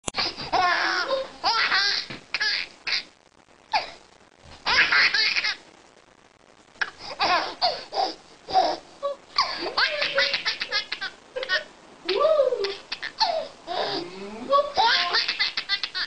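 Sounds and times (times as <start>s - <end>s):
baby laughing: 0.2s - 3.1s, 4.6s - 5.6s, 7.2s - 7.8s, 8.5s - 14.0s, 14.6s - 16.0s.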